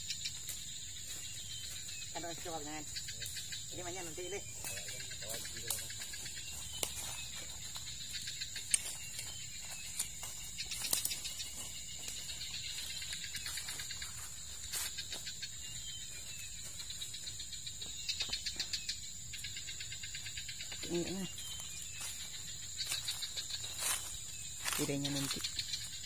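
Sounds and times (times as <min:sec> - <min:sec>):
high-pitched insect drone: 0:00.0 - 0:26.0
footsteps on dry leaves: 0:00.4 - 0:02.6, 0:04.4 - 0:17.9, 0:20.9 - 0:26.0.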